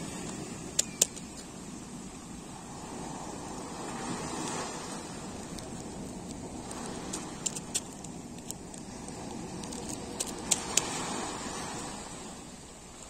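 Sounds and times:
sea waves washing on shore: 0.0 - 13.0
sharp clicks: 0.7 - 1.4, 6.9 - 11.0.

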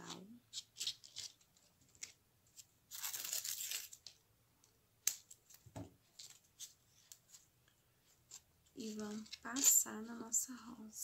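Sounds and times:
tape tearing: 0.5 - 4.2.

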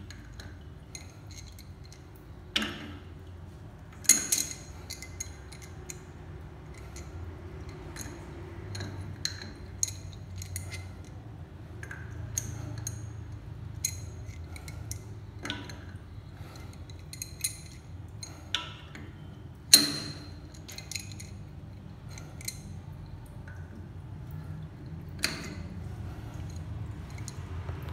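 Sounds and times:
low steady hum: 0.0 - 27.9
wrench clinking on metal fittings: 4.0 - 6.0, 13.8 - 21.5.

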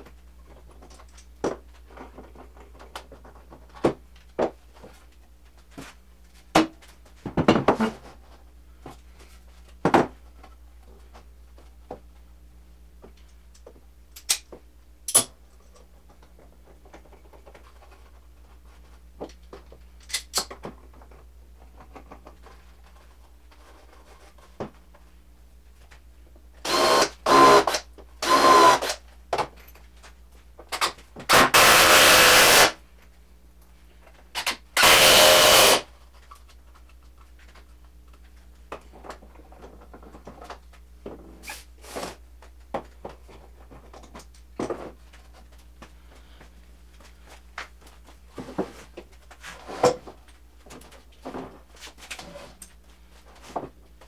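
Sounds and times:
power drill driving screws: 26.6 - 29.0, 31.3 - 32.8, 34.8 - 35.9.

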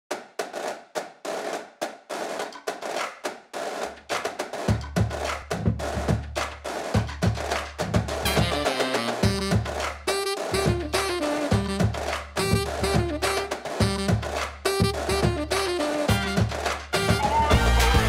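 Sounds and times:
drum and percussion beat: 0.1 - 18.0
deep bass line: 10.6 - 14.3, 14.9 - 18.0.

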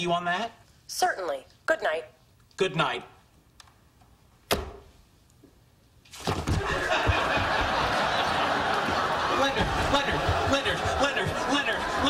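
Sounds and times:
studio audience laughing: 6.6 - 12.0.

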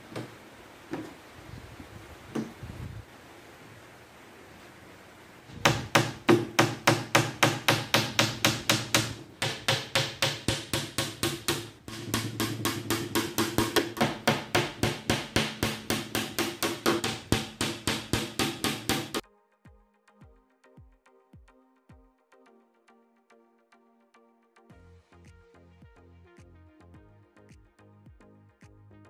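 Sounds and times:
hammer nailing plywood: 5.5 - 19.2.

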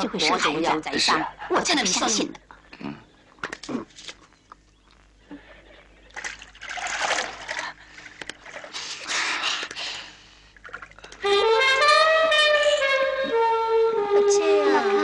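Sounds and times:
wind instrument melody: 11.2 - 15.0.

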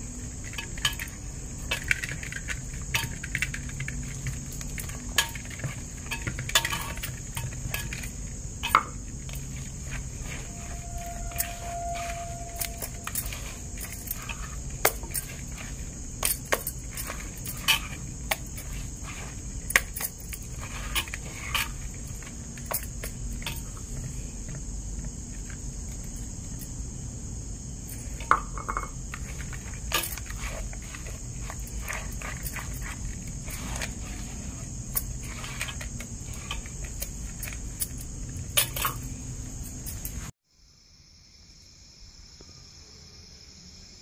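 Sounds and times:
high chirring hiss: 0.0 - 44.0
bangles clinking: 0.2 - 24.5, 27.8 - 40.3
hand mixing thick batter: 9.0 - 25.6, 29.1 - 37.8.

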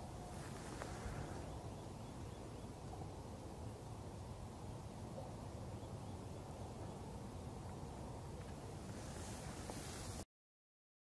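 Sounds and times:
brief hiss: 8.9 - 10.2.

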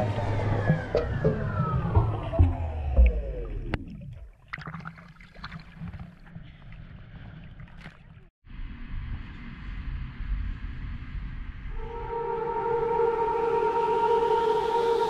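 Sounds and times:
underwater boat motor whine: 0.0 - 3.8, 11.7 - 15.0
muffled rumble with clicks: 0.0 - 4.3
water sloshing and splashing: 2.0 - 8.3.

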